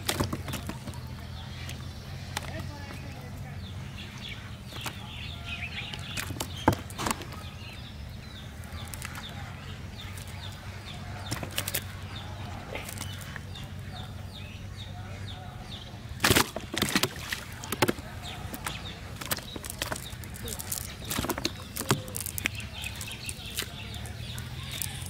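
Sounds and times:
fish flapping against net: 16.2 - 25.0.

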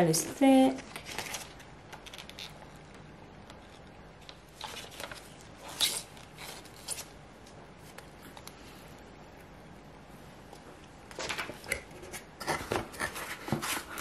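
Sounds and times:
packaging rustling: 0.8 - 2.6.

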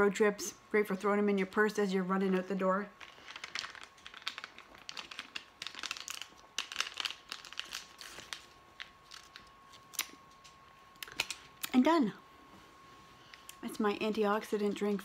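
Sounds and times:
plastic pouch crinkling: 3.0 - 11.5.

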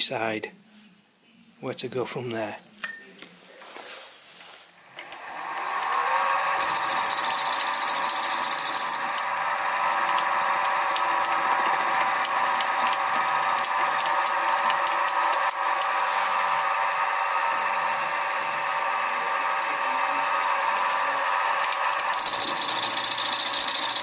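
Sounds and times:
mill spindle whining: 4.7 - 24.0
end mill cutting metal: 4.8 - 24.0.

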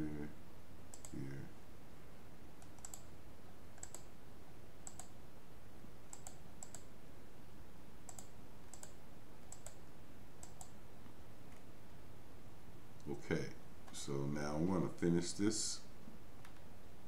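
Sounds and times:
computer mouse button clicking: 2.6 - 3.1, 3.8 - 4.1, 6.1 - 6.9, 8.1 - 9.8.

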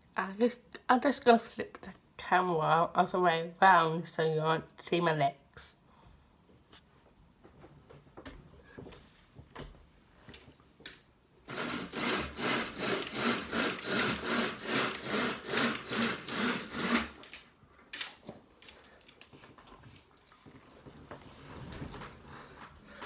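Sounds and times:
window blind cord scraping: 11.5 - 17.4.

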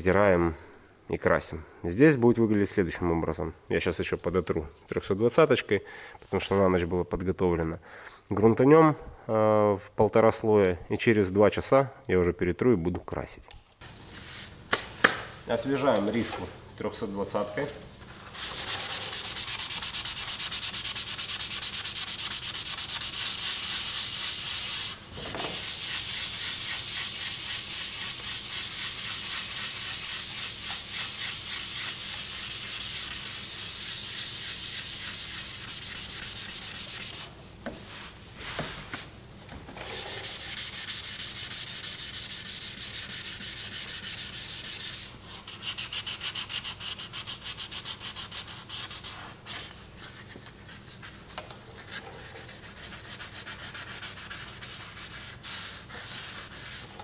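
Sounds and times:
sandpaper scratching on panel: 18.3 - 37.3, 39.9 - 51.2, 51.8 - 57.0.

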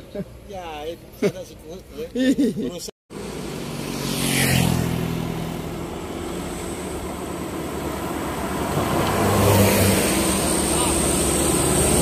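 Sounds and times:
car passing close: 3.1 - 12.0.

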